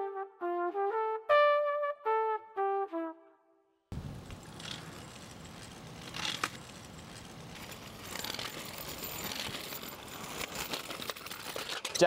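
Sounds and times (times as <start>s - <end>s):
outdoor background hiss: 3.9s - 9.0s.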